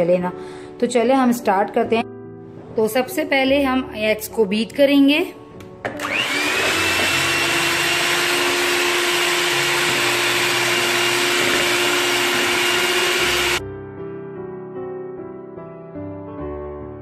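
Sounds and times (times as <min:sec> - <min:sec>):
soft piano music: 0:00.0 - 0:06.0, 0:13.2 - 0:17.0
electric hand mixer whining: 0:05.9 - 0:13.6
beaters whisking eggs in a bowl: 0:06.5 - 0:13.6.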